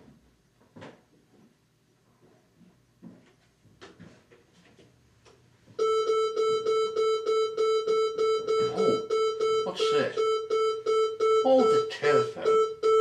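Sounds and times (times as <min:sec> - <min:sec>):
telephone ringing: 0:05.8 - 0:13.0.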